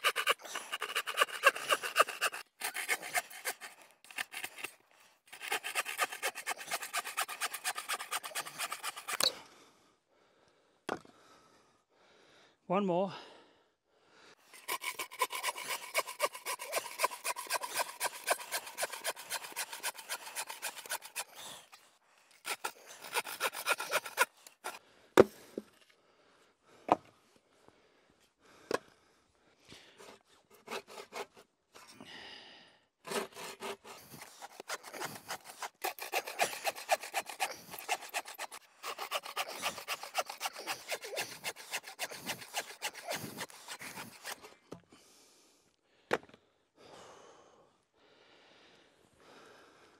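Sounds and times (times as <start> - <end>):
saw cutting wood: 0.0 - 9.4, 14.5 - 24.8, 30.0 - 31.4, 33.1 - 44.6.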